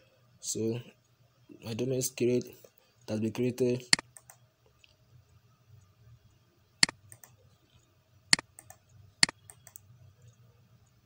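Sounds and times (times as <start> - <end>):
faint ticks: 7.1 - 11.0.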